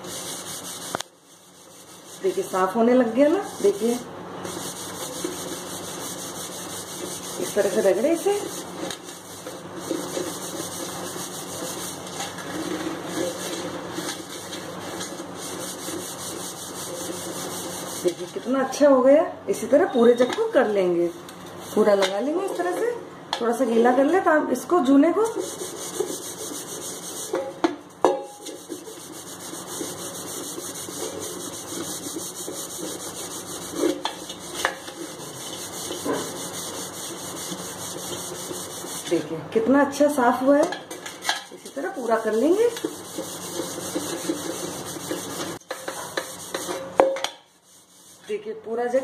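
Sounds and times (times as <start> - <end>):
scouring pad scrubbing metal: 0.0 - 2.8, 3.6 - 18.3, 25.2 - 27.5, 28.5 - 39.2, 41.9 - 46.8, 47.6 - 48.3.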